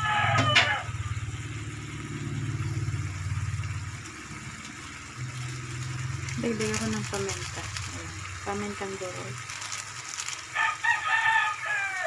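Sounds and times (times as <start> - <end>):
low pulsing rumble: 0.8 - 9.6.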